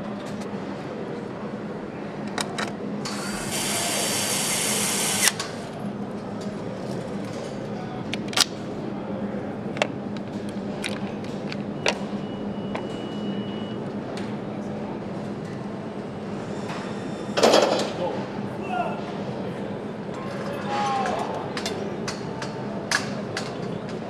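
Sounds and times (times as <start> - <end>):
steady factory hum: 0.0 - 24.0
power tool hissing: 3.1 - 5.4.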